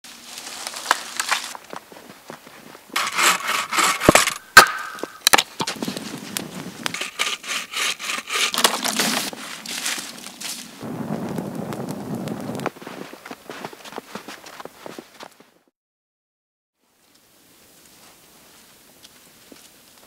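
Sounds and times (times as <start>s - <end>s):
branches snapping: 0.3s - 1.8s, 3.0s - 10.8s
wood rubbing and scraping: 0.4s - 10.8s.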